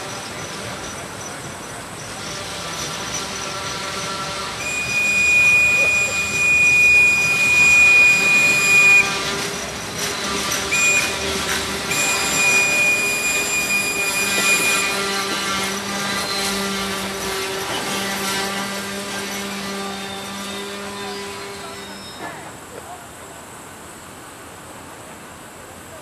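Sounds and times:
locomotive air horn blasts: 2.4s - 22.4s.

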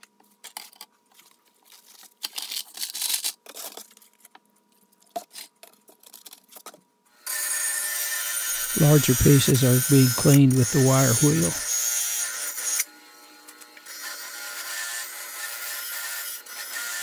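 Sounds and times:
plastic crinkles: 0.0s - 6.8s
bench grinder running: 7.3s - 17.0s.

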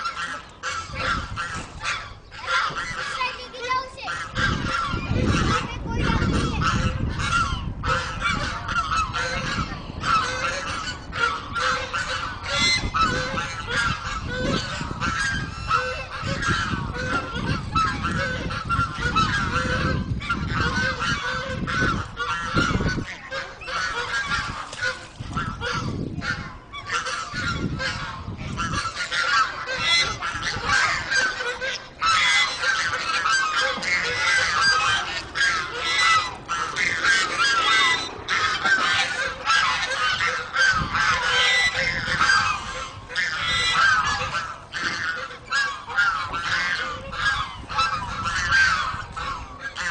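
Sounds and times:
geese honking: 0.0s - 49.9s.

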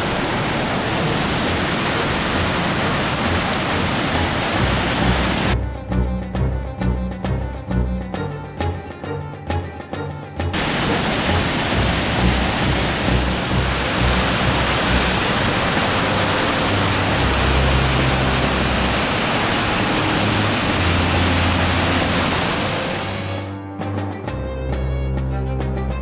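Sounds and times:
waterfall rushing: 0.0s - 5.6s, 10.6s - 23.6s.

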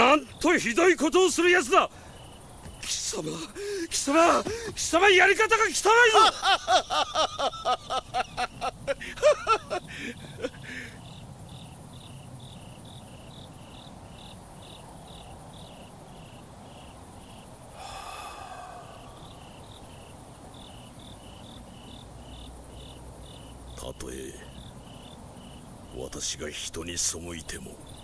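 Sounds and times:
crickets chirping: 0.0s - 28.0s
man's voice: 2.8s - 6.4s.

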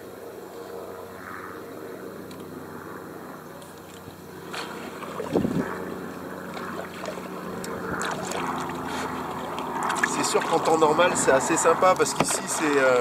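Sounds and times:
low engine hum: 0.0s - 13.0s
water along a hull: 3.7s - 13.0s.

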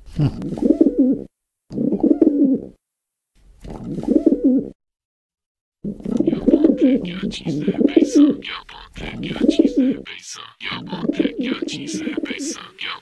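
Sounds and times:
pigeons cooing: 0.2s - 2.8s, 3.8s - 4.8s, 5.8s - 10.0s, 10.6s - 13.0s.

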